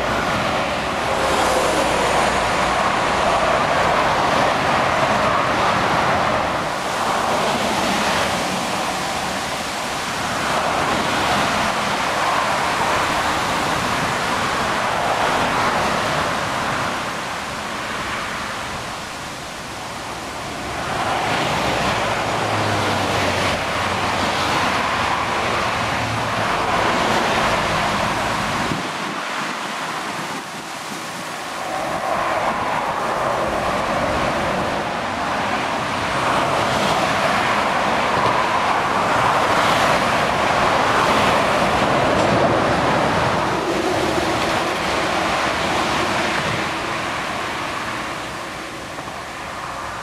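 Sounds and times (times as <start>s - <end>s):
heavy vehicle engine hum: 0.0s - 50.0s
tyre hiss of passing traffic: 0.0s - 50.0s.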